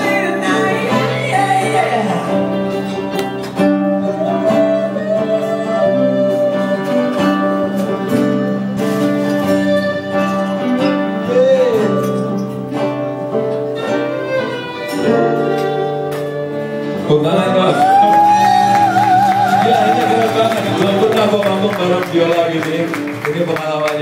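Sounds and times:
person singing: 0.0 - 3.4, 4.0 - 8.1, 11.0 - 12.6, 17.6 - 21.1
strummed acoustic guitars: 0.0 - 24.0.

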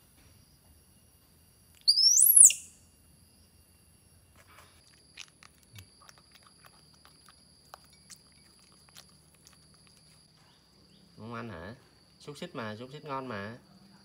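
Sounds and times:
animal chewing food: 4.6 - 10.9.

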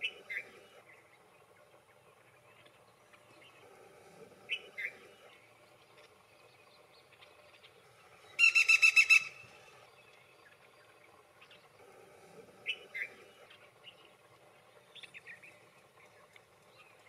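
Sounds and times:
woodpecker rattling call: 8.4 - 9.4.

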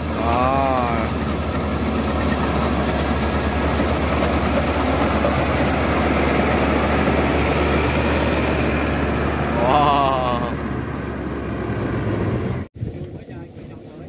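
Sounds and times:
straw pickup clatter: 0.0 - 9.6
baler engine humming: 0.0 - 12.7.

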